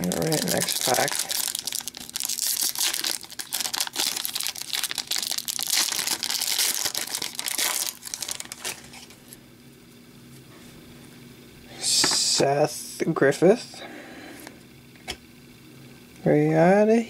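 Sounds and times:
plastic wrapper crinkling: 0:00.0 - 0:09.2.

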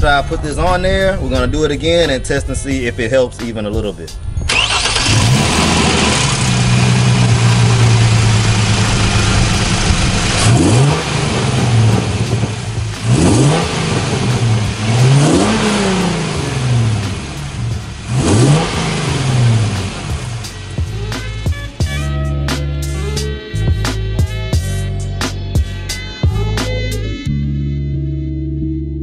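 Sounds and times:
car engine idling and revving: 0:04.1 - 0:22.0.

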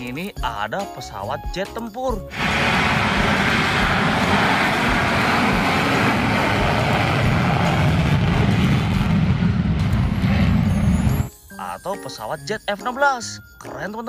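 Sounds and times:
jet engine roar: 0:02.3 - 0:11.3.

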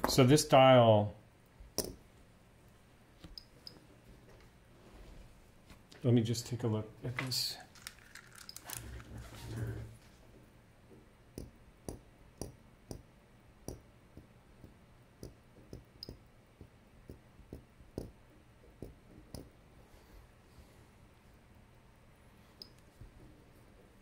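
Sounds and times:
handling rustle: 0:07.6 - 0:10.2.

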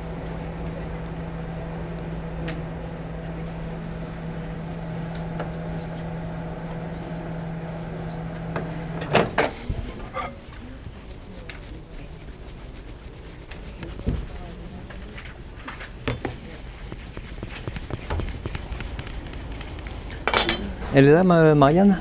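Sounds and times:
microwave oven humming: 0:00.0 - 0:10.4, 0:17.1 - 0:22.0.

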